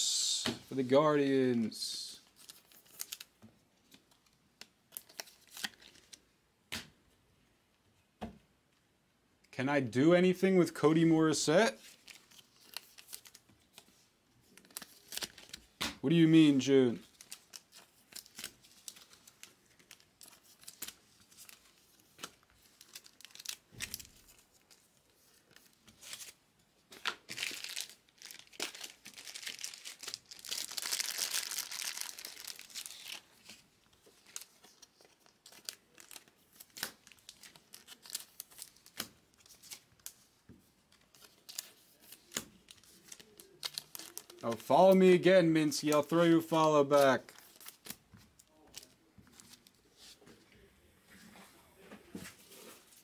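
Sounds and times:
wrapper crinkling and tearing: 2.3 - 3.3, 4.9 - 6.2, 11.9 - 13.8, 14.5 - 15.8, 17.0 - 24.8, 27.0 - 40.2, 40.9 - 44.7, 47.0 - 49.6.

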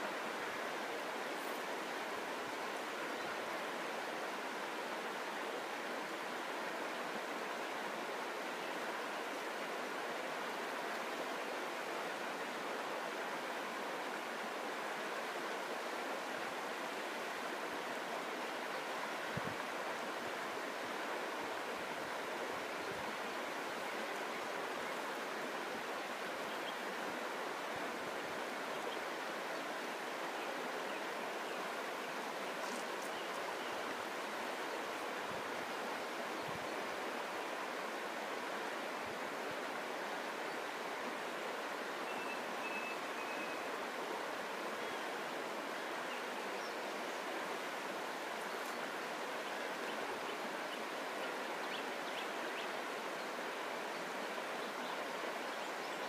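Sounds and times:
river flowing over stones: 0.0 - 56.0.

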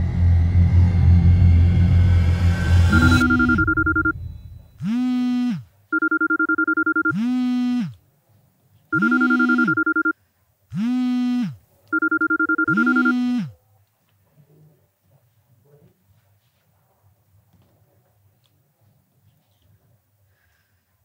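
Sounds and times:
phone ringtone: 2.9 - 4.3, 6.0 - 7.8, 9.0 - 10.2, 12.0 - 13.4.

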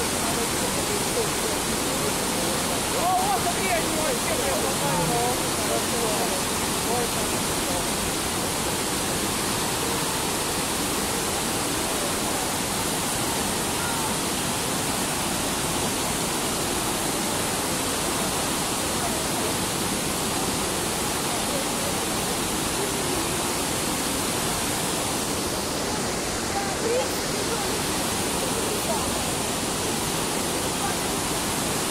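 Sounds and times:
whitewater rushing over rocks: 0.0 - 31.9.

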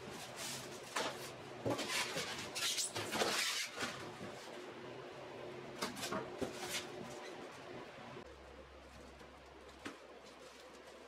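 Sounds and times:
metal cabinet scraping packaging: 0.1 - 4.4.

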